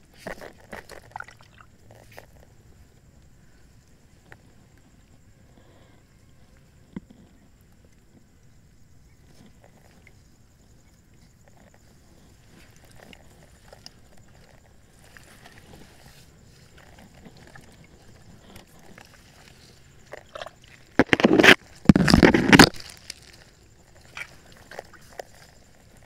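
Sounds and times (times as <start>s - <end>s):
water sloshing: 0.3s - 2.4s, 12.4s - 26.0s
faint crackling and clicks: 9.2s - 26.0s.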